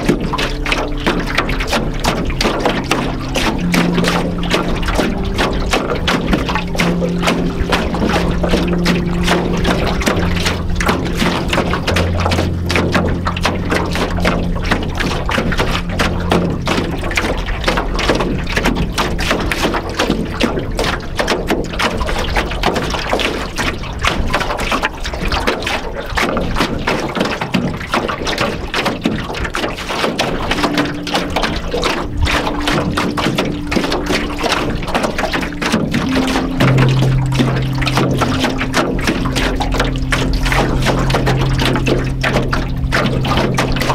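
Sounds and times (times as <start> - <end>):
ambient music pad: 0.0 - 43.9
waves lapping against canoe hull: 0.0 - 43.9.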